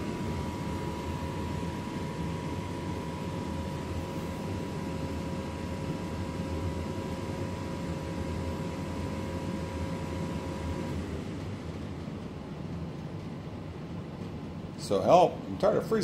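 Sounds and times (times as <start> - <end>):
faint high whine: 0.0 - 11.1
furnace hum and air rush: 0.0 - 16.0.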